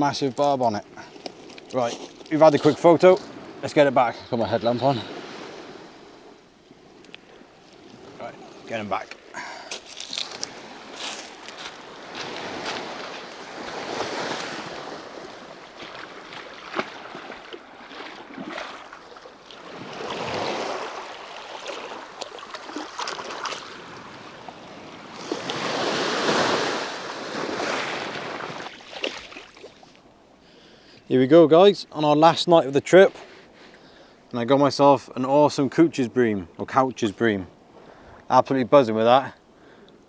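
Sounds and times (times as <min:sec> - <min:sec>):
sea waves washing onto shore: 0:00.0 - 0:30.0.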